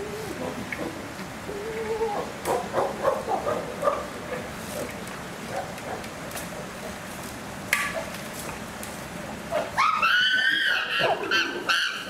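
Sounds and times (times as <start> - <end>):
chimpanzees screaming: 9.7 - 12.0.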